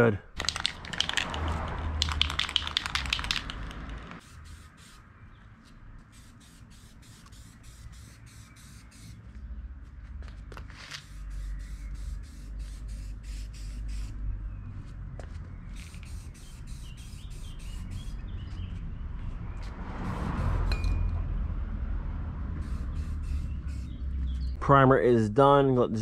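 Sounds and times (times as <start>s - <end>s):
aerosol can rattling: 0.4s - 4.9s.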